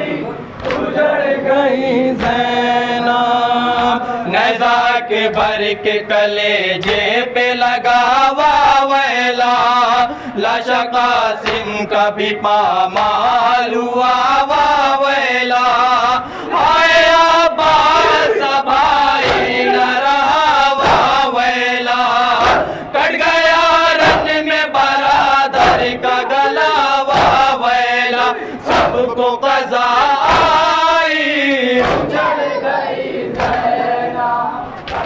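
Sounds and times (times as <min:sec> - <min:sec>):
men chanting in unison: 0:00.0 - 0:35.0
hands slapping chests: 0:00.6 - 0:00.9, 0:06.8 - 0:07.1, 0:11.4 - 0:11.7, 0:18.7 - 0:21.2, 0:26.8 - 0:27.5, 0:31.8 - 0:32.3, 0:33.3 - 0:33.7, 0:34.8 - 0:35.0.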